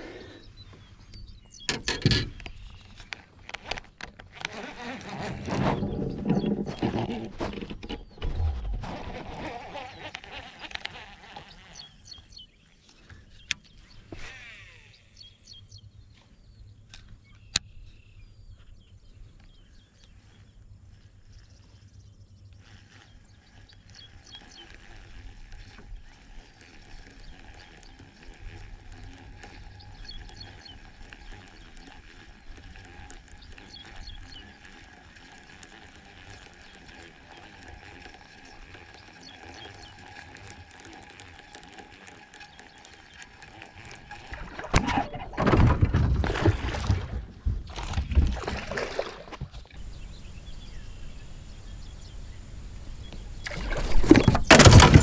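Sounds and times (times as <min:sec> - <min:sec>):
fishing reel gears whirring: 0:01.9 - 0:07.3, 0:08.9 - 0:12.2, 0:14.0 - 0:15.4, 0:22.6 - 0:44.7.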